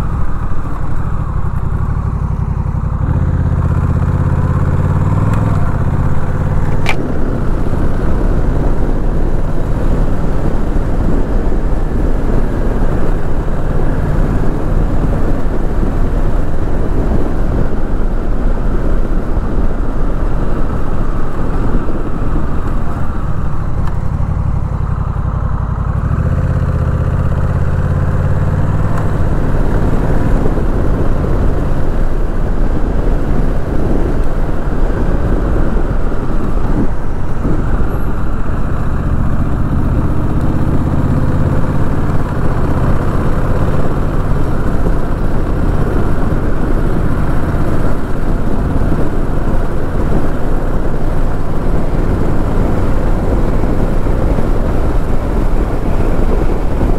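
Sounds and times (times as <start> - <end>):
motorcycle engine running: 0.0 - 56.9
road and wind rush: 0.0 - 56.9.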